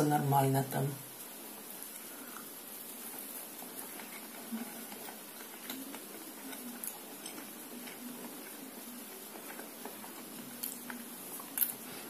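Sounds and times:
person chewing food: 3.6 - 8.6, 9.3 - 12.0.

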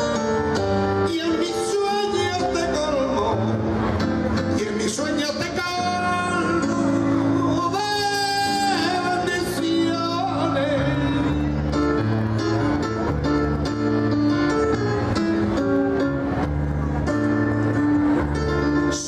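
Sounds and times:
instrumental backing music: 0.0 - 19.0.

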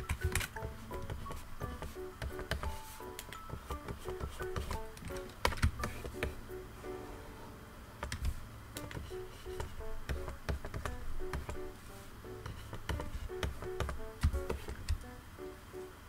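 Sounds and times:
background music plucked melody: 0.0 - 8.0, 8.7 - 16.0
stylus tapping on pen display: 8.1 - 11.6, 12.4 - 15.0.

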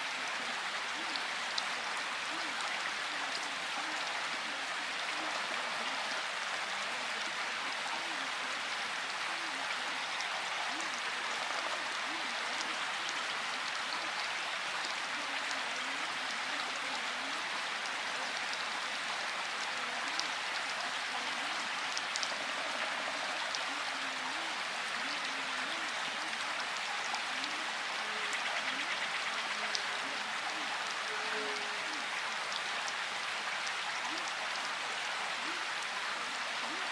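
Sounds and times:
steady dense rain: 0.0 - 36.9
faint voice speaking: 19.7 - 32.2.

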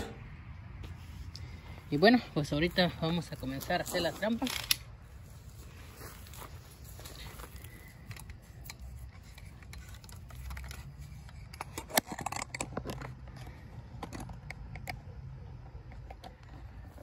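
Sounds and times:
hand tool clicks and rattles: 3.8 - 4.9, 7.3 - 17.0.

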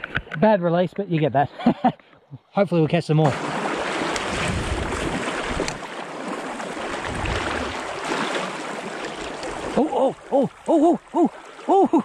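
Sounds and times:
low water rumbles: 2.7 - 12.0
stream running over stones: 3.1 - 12.0.

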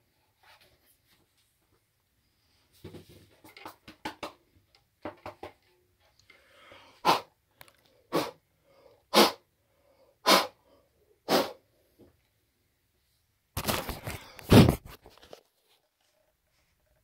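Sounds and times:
sharp puffs of breath: 6.3 - 7.4, 8.0 - 11.7.

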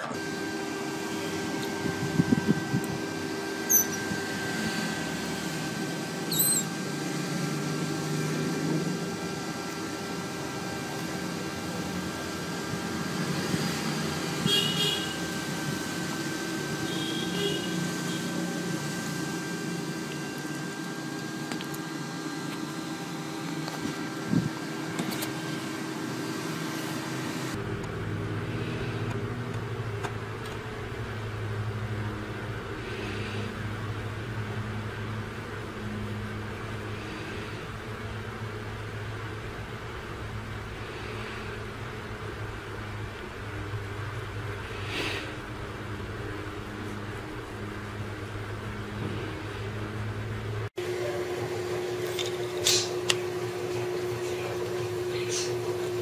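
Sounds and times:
steady hum: 0.0 - 56.0
high chirps: 6.3 - 6.7
otter squeaking: 6.3 - 6.8.

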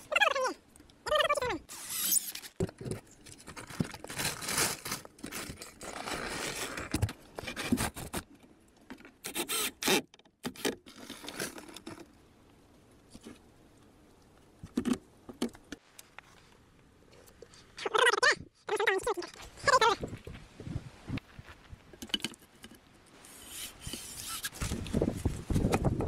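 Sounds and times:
logs and tarp scraping: 1.7 - 8.3, 10.6 - 12.1, 23.1 - 26.0.

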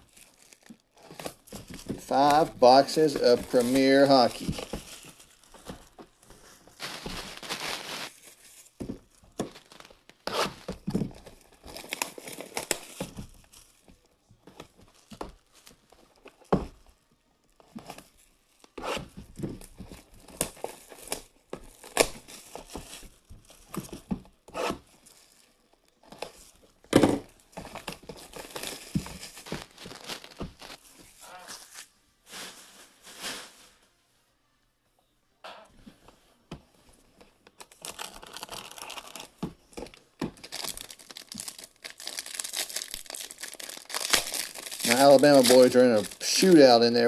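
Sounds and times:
plastic wrap crinkling: 0.0 - 16.9, 17.5 - 34.0, 37.4 - 47.0
knife slitting shrink wrap: 40.4 - 46.5.

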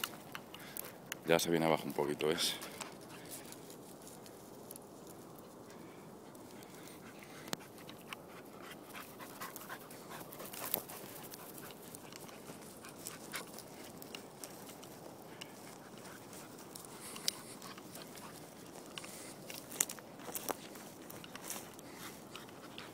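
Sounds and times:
dry grass and twigs crackling underfoot: 0.0 - 22.9
dog panting: 5.6 - 22.9.

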